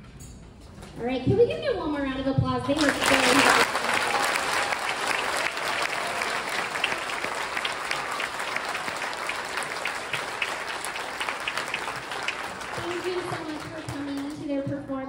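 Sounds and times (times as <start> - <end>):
audience applauding: 2.8 - 14.4.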